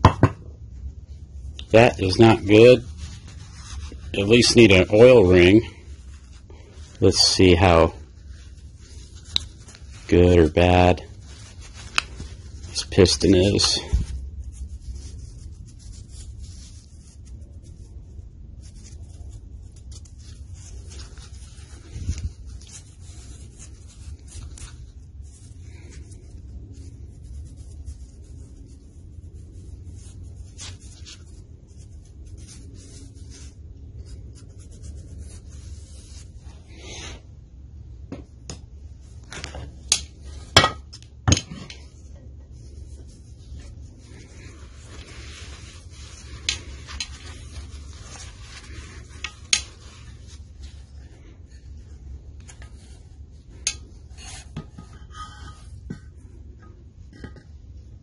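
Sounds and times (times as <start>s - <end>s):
low steady hum: 0.0s - 58.0s
gloved hands rubbing piston: 1.0s - 37.3s, 38.9s - 58.0s
metal parts rubbing and clinking: 42.9s - 51.0s, 52.5s - 57.4s.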